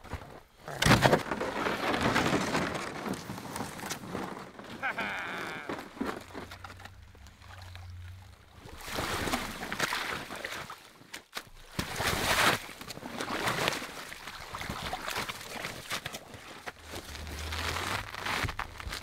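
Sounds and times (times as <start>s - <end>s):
ice scraping: 0.3s - 10.8s, 11.8s - 19.0s
water sloshing: 3.8s - 18.2s.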